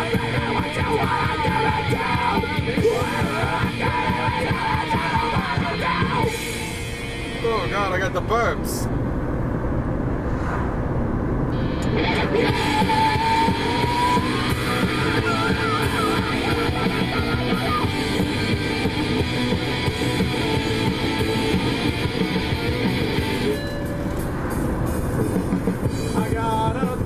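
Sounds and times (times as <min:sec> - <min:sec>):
rock music with electric guitar: 0:00.0 - 0:08.0, 0:11.5 - 0:27.0
car rumbling on road: 0:00.0 - 0:27.0.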